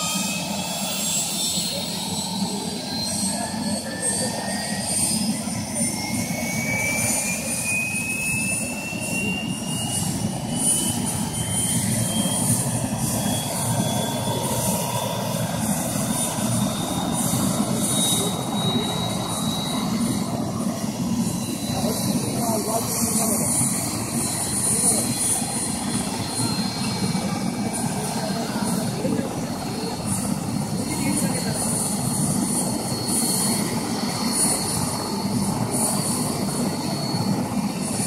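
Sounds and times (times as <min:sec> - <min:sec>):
helicopter engine rumble: 0:00.0 - 0:38.0
helicopter turbine whine: 0:00.0 - 0:38.0.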